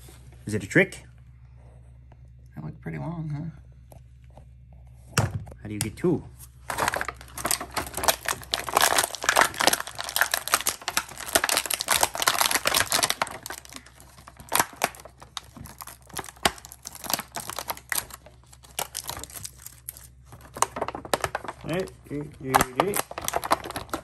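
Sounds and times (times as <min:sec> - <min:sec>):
plastic packaging crackling: 0:06.6 - 0:24.0.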